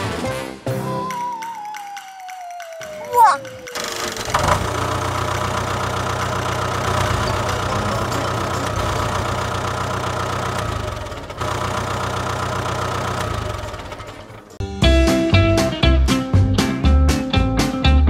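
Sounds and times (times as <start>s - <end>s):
tractor engine running: 2.1s - 14.6s.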